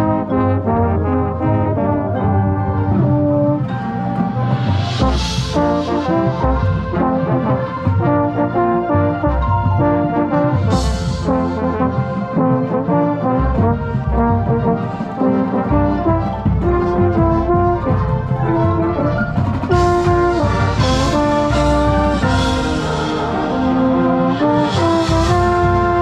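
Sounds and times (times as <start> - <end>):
marching band playing: 0.0 - 26.0
trombone close up: 0.0 - 26.0
crashing cymbals: 4.1 - 7.2, 18.1 - 26.0.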